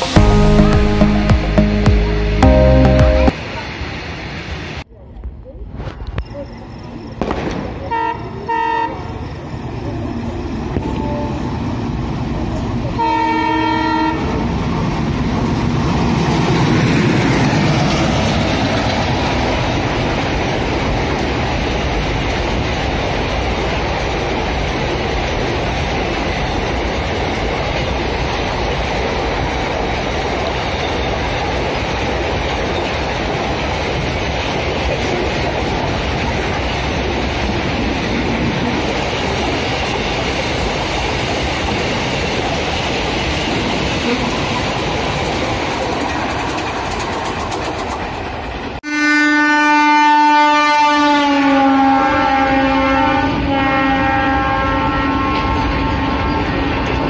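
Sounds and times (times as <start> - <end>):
freight train passing: 0.0 - 57.0
train horn blast: 7.9 - 9.1, 13.0 - 14.4, 48.8 - 56.2
wagons rolling on rails: 14.5 - 48.8.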